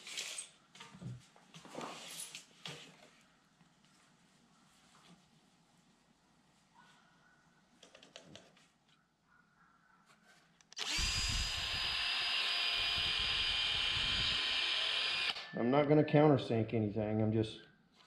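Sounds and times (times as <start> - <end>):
cordless drill boring wood: 10.7 - 15.4.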